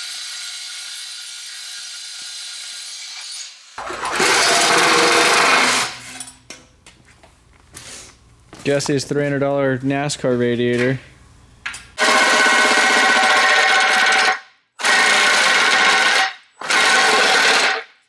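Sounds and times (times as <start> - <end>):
power tool whining: 0.0 - 6.0.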